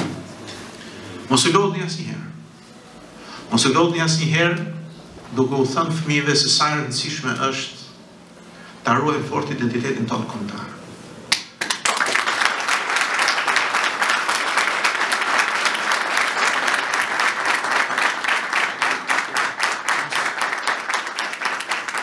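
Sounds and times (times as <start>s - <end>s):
audience clapping: 11.3s - 22.0s.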